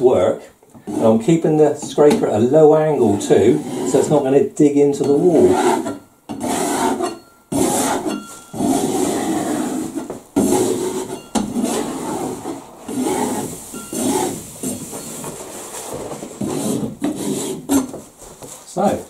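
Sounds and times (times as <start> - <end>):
knife scraping paper off wall: 5.2 - 18.0.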